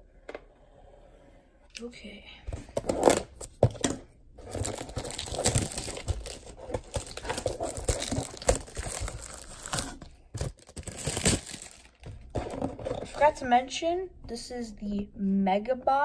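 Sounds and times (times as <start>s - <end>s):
plastic wrap crinkling and tearing: 4.4s - 12.3s.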